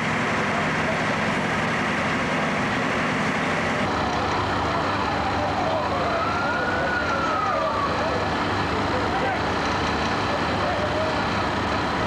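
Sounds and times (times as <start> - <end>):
fire truck engines rumbling: 0.0 - 12.0
siren wailing: 5.0 - 8.3.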